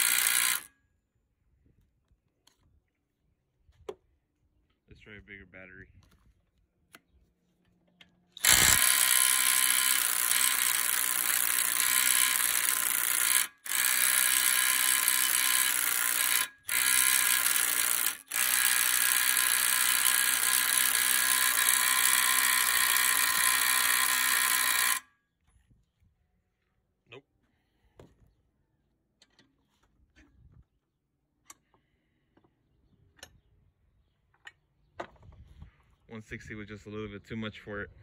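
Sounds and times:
impact driver hammering: 8.4s - 25.0s.

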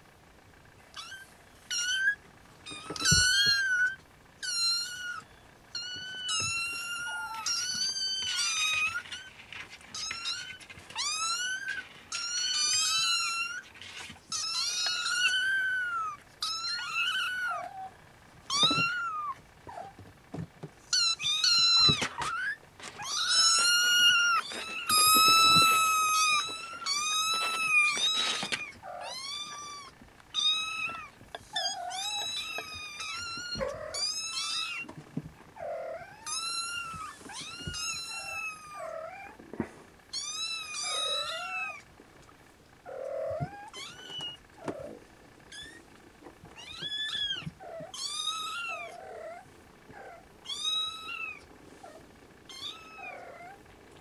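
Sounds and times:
kittens meowing: 0.9s - 20.0s, 20.8s - 35.0s, 35.6s - 39.4s, 40.1s - 41.9s, 42.9s - 53.7s.

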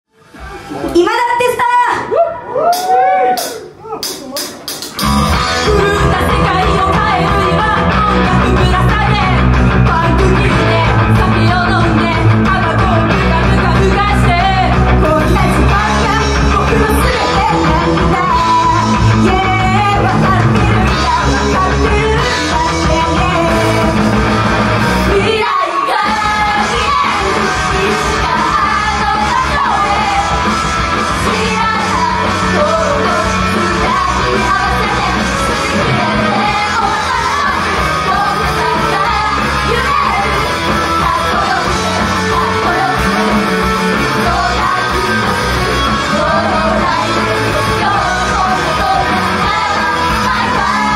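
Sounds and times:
loud rock music: 4.1s - 50.9s
women singing into microphones: 5.6s - 24.2s, 25.1s - 50.9s.

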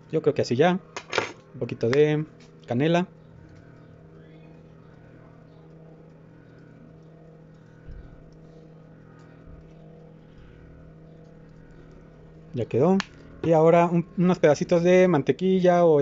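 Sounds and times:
appliance electrical hum: 0.0s - 16.0s.

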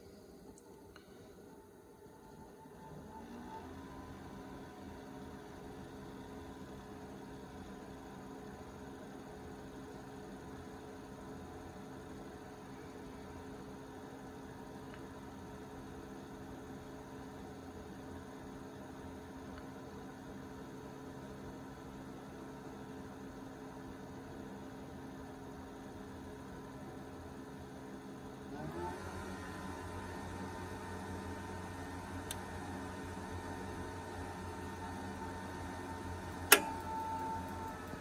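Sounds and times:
heater hum with tones: 0.0s - 38.0s
fan spinning up: 1.0s - 6.5s, 28.4s - 38.0s.

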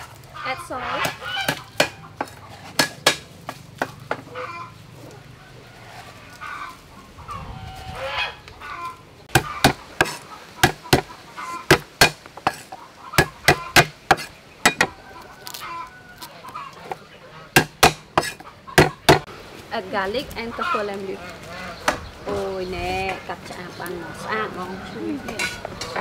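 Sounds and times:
cleaver chopping on wooden block: 1.0s - 4.2s, 9.3s - 11.1s, 11.7s - 15.0s, 17.6s - 19.3s.

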